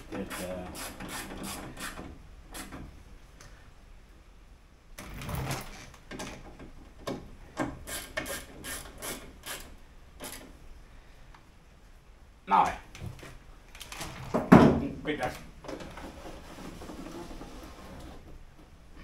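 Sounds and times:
hand tool tightening bolts: 7.0s - 10.5s.

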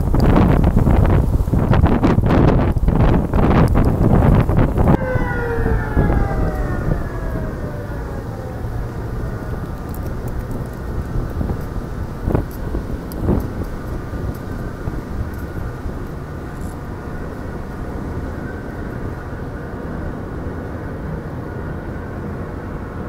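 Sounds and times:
low rumble: 4.1s - 18.2s
siren-like whine sliding down: 4.7s - 12.6s.

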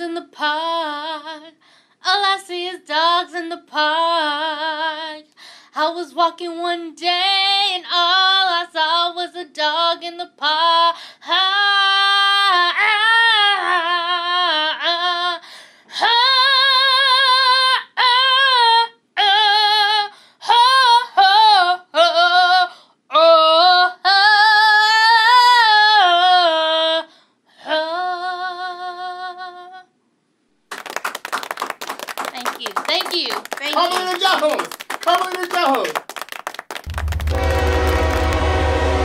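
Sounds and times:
woman singing with vibrato: 0.0s - 15.4s, 16.0s - 29.9s
people clapping: 30.7s - 38.8s.

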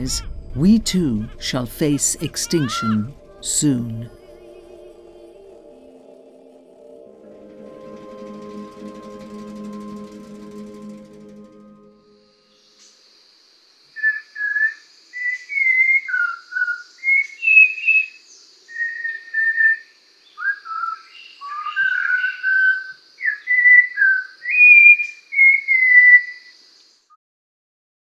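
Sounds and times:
thin steady high tone: 0.0s - 12.8s
whistled song: 14.0s - 26.5s.

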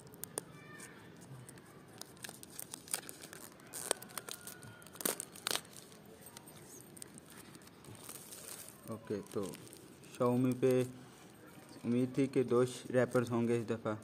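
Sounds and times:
plastic shrink wrap crackling and ripping: 0.0s - 0.8s, 1.4s - 11.0s.

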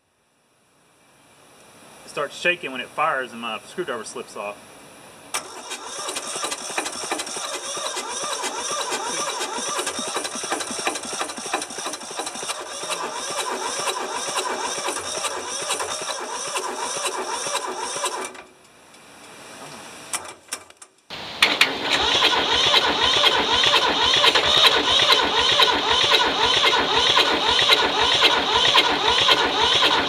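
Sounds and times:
diesel engine cranking: 5.3s - 18.8s, 20.1s - 30.0s.

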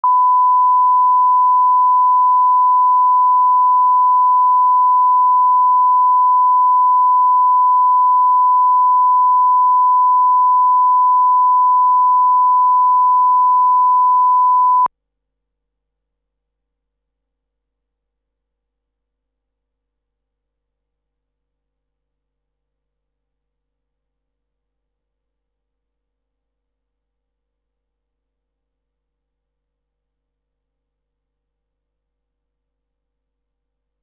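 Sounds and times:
steady pure test tone: 0.0s - 14.9s.

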